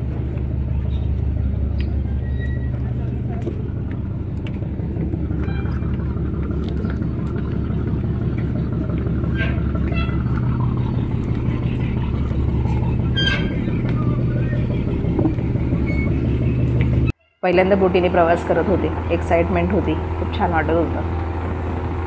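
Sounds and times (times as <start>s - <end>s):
boat engine droning: 0.0s - 22.0s
people's voices: 10.4s - 21.1s.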